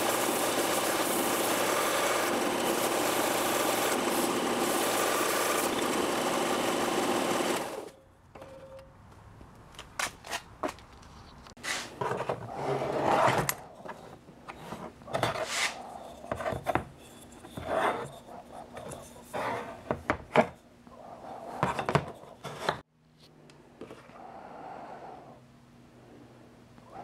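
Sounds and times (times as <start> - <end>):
wood on metal scraping: 11.6 - 20.0.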